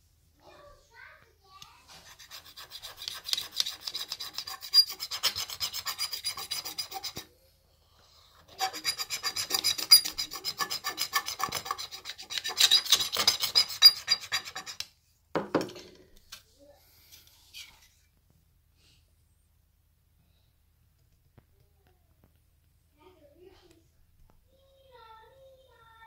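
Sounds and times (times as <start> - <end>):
knife scraping on glass: 2.1 - 7.2, 8.5 - 14.8.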